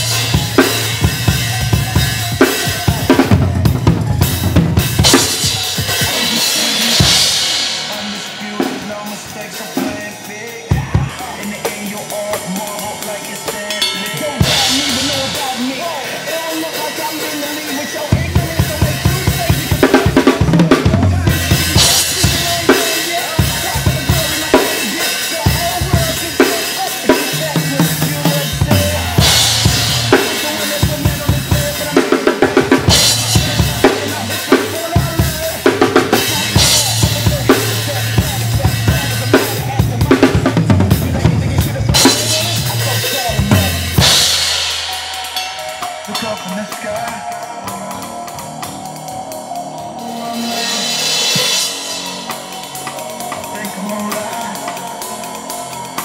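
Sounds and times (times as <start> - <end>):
drum kit groove: 0.0 - 56.0
cymbal crashes: 13.7 - 16.3.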